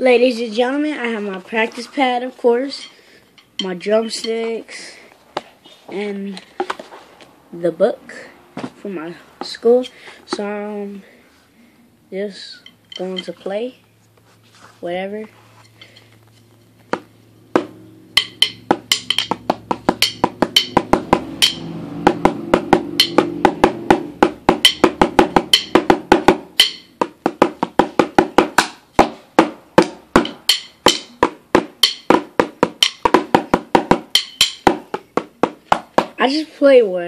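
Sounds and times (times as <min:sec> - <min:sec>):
drumsticks on practice pad: 0:02.8 - 0:04.8, 0:15.2 - 0:36.2.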